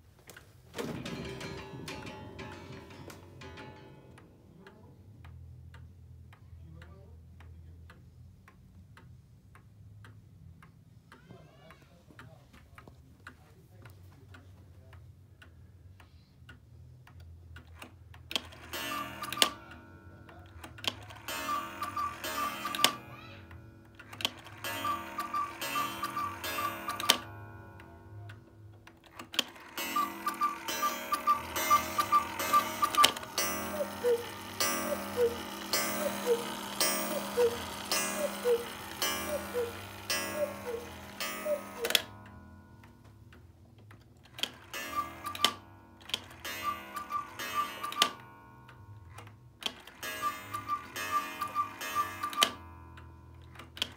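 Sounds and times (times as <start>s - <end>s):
clock movement clicking: 0.3s - 53.9s
clock ticking: 1.0s - 53.9s
cuckoo clock two-note call: 18.4s - 28.4s, 29.4s - 42.9s, 44.7s - 48.9s, 49.8s - 53.2s
bellows pipe calls: 29.8s - 42.0s.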